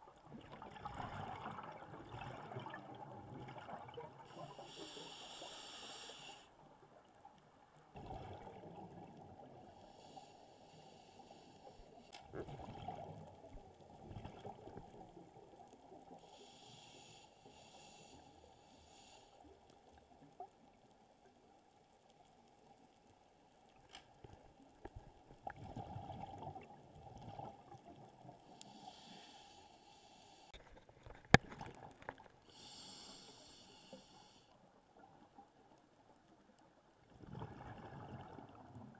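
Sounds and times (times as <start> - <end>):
regulator hiss on inhale: 4.3 - 6.5, 9.7 - 12.2, 16.1 - 19.6, 28.5 - 30.6, 32.4 - 34.6.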